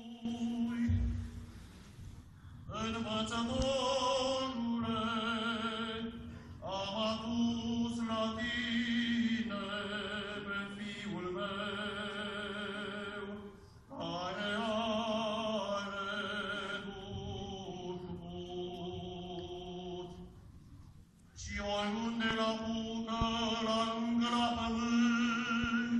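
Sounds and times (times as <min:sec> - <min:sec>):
steady held low vocal note: 0:00.0 - 0:20.4
voices chanting a slow melody: 0:02.7 - 0:20.2.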